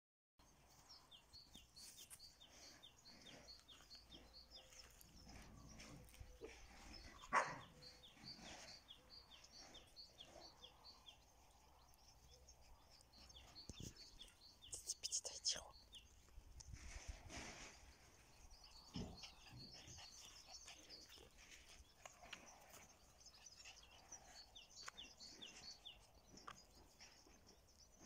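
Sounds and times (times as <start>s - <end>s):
dog bark: 7.3s - 7.7s.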